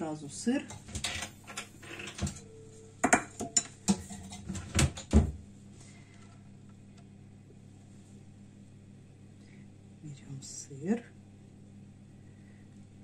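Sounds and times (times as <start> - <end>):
kitchen things knocking and clattering: 3.0 - 5.3.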